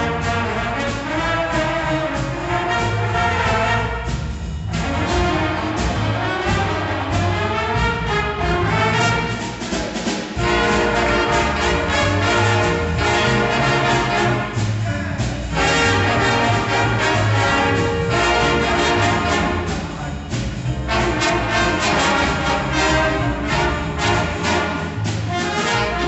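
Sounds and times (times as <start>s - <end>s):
jazz big band playing blues: 0.0s - 26.0s.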